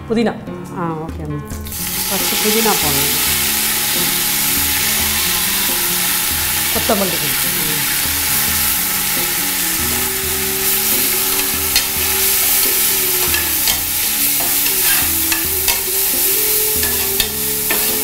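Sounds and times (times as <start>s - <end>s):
leaves sizzling in hot oil: 1.6s - 18.0s
metal ladle scraping a pot: 7.9s - 18.0s.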